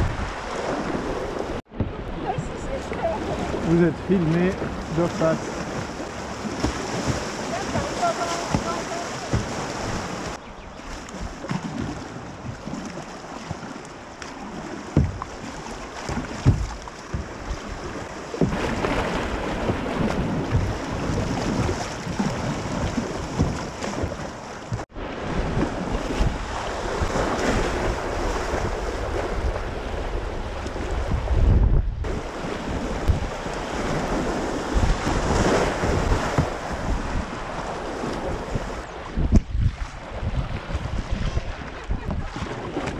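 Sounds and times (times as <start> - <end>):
wind buffeting microphone: 0.0 - 12.8, 14.6 - 42.9
river water rushing and splashing: 0.0 - 31.4, 32.0 - 42.9
sharp knocks: 16.1 - 17.4.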